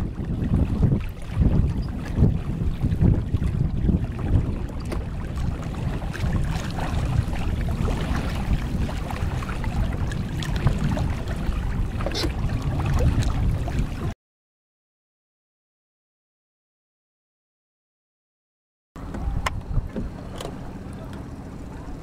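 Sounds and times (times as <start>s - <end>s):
small waves lapping and splashing: 0.0s - 14.2s, 19.0s - 22.0s
wind rumbling on microphone: 0.0s - 14.2s, 19.0s - 22.0s.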